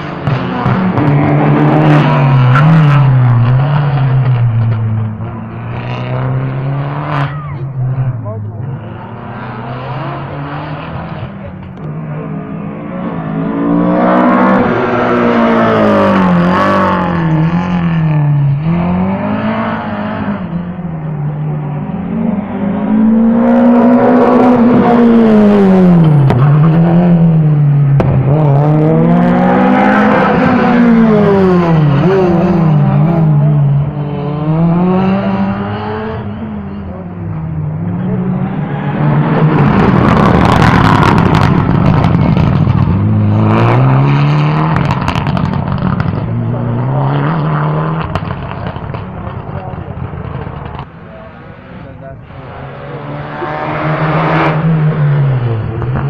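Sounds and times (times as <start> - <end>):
rally cars passing at speed: 0.0 - 56.0.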